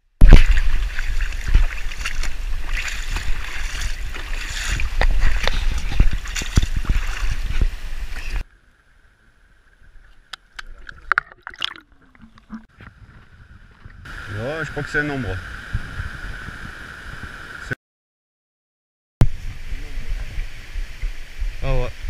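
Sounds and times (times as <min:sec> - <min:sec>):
river water rushing and splashing: 0:00.2 - 0:08.5.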